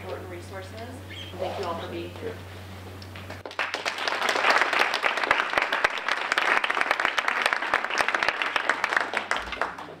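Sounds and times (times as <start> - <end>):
audience applauding: 3.3 - 10.0.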